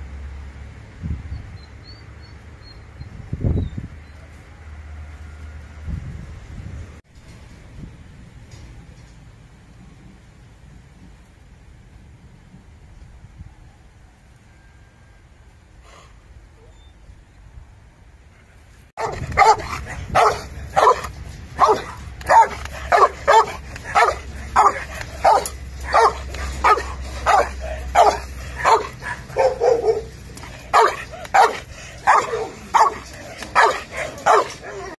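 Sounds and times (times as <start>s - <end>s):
dog barking: 19.0s - 35.0s.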